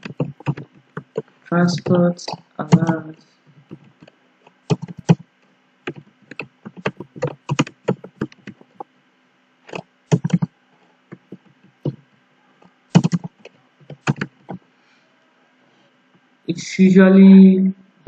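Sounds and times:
keyboard typing clicks: 0.0 - 5.2, 5.9 - 8.9, 9.7 - 10.5, 12.9 - 14.6.

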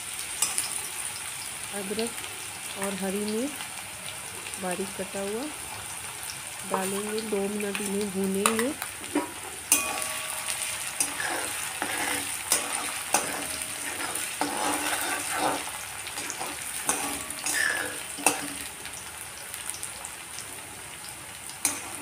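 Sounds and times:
food sizzling in hot oil: 0.0 - 22.0
metal spatula clinking on pan: 0.4 - 0.8, 8.4 - 18.7, 21.6 - 22.0.

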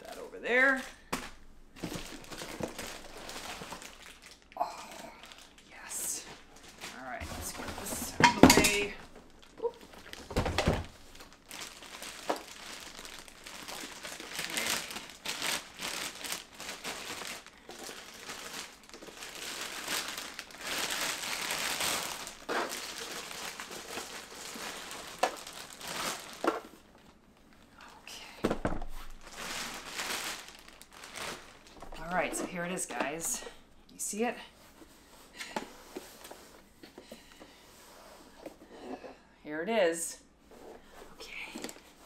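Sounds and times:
plastic wrap crinkling: 0.0 - 33.5.

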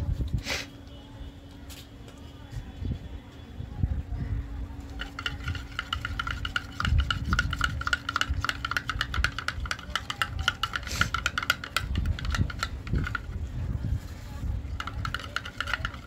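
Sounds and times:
spoon clicking against glass: 5.0 - 13.2.

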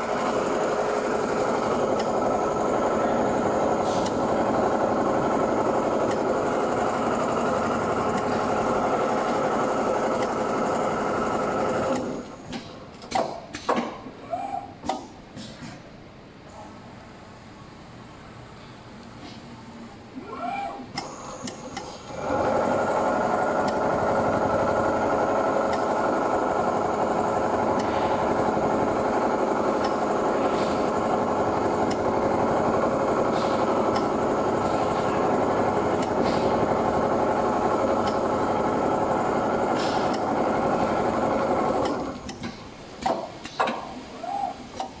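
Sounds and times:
sewing machine stitching: 0.0 - 12.3, 21.5 - 42.4.

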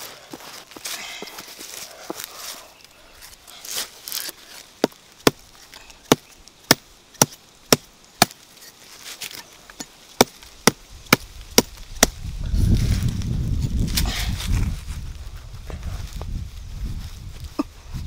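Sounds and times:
blade chopping into dry soil: 3.2 - 12.3.

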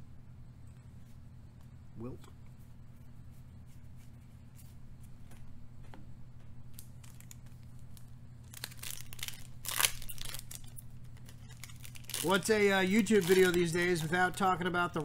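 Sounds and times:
foil wrapper crinkling and tearing: 6.7 - 15.0.

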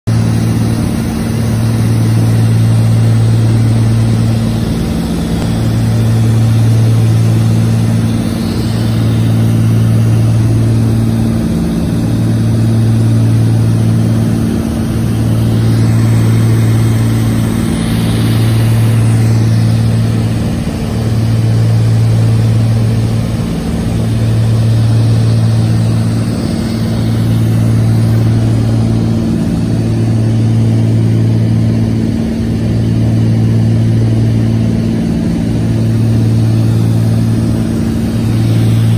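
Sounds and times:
propeller aircraft engines droning: 0.1 - 38.9.

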